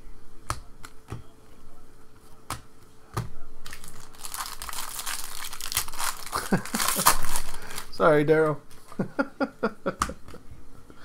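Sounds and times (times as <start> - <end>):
cards being flipped: 3.6 - 7.9
foil wrapper crinkling: 3.6 - 8.1.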